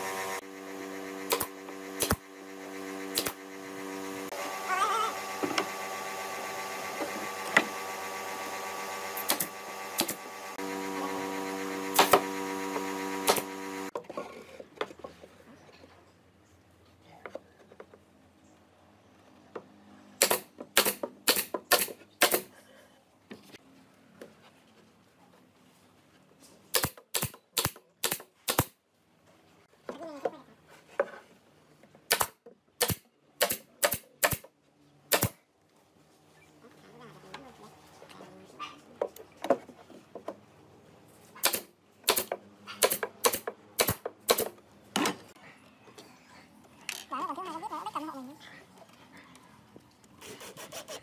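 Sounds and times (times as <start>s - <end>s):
nail gun firing: 1.1s - 2.3s, 2.9s - 3.5s, 9.1s - 10.3s, 11.8s - 13.8s, 20.2s - 22.5s, 26.7s - 28.8s, 32.1s - 34.5s, 35.1s - 35.4s, 41.4s - 45.2s.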